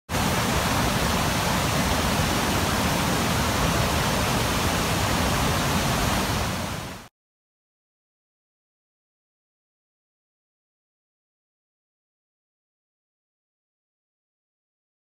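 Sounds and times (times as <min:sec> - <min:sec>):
waterfall rushing: 0:00.1 - 0:07.1.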